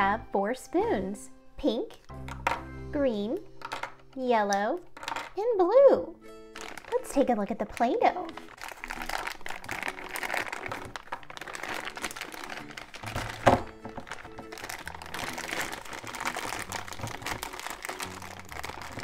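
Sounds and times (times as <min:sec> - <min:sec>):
light background music: 0:00.0 - 0:19.0
plastic wrap crinkling: 0:06.4 - 0:19.0.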